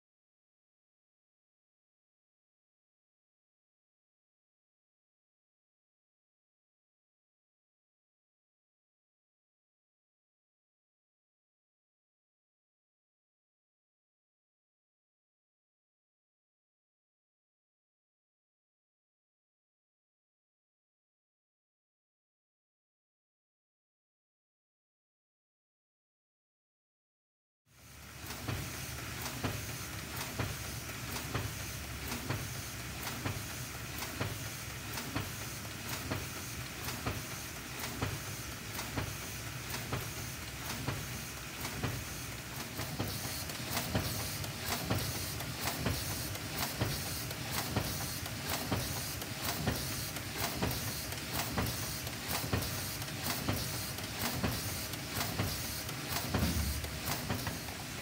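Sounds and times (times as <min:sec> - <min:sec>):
laminator machine hum: 0:27.8 - 0:58.0.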